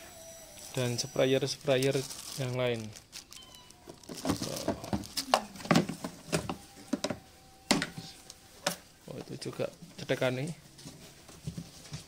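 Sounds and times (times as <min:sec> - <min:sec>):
plastic bag crinkling: 0:00.6 - 0:07.3.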